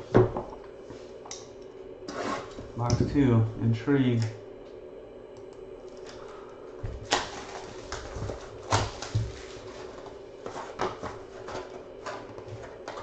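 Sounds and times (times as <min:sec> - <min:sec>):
steady low hum: 0:00.0 - 0:13.0
plastic shrink wrap crinkling: 0:07.0 - 0:13.0.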